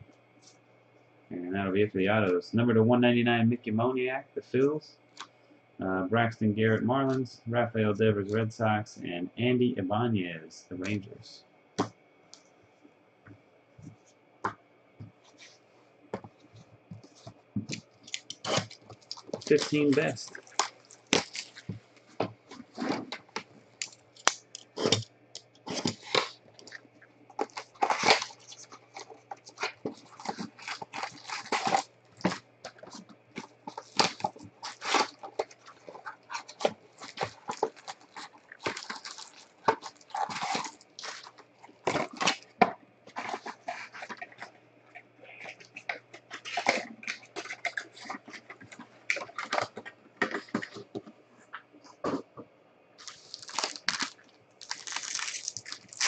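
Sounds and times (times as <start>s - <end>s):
foil packs rustling: 17.0s - 44.5s, 45.4s - 51.1s, 53.0s - 56.0s
shrink wrap crinkling and tearing: 17.7s - 42.6s, 45.4s - 50.9s, 53.0s - 56.0s.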